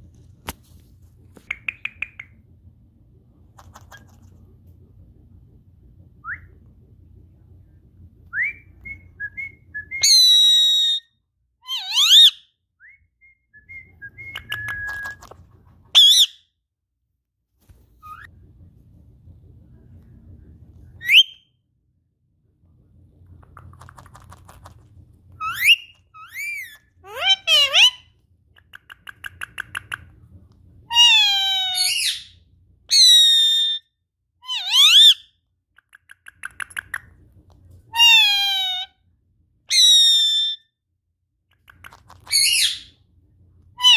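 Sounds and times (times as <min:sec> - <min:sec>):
parakeet chirping and whistling: 0:08.5 - 0:11.1, 0:11.7 - 0:12.5, 0:16.0 - 0:16.4, 0:21.0 - 0:21.5, 0:25.4 - 0:28.1, 0:30.9 - 0:35.3, 0:39.7 - 0:40.7, 0:41.9 - 0:43.0
parakeet chattering chirps: 0:41.8 - 0:42.9.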